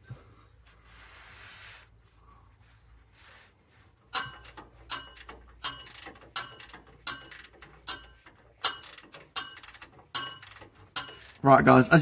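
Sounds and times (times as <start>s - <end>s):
hand ratchet clicking: 4.1s - 11.4s.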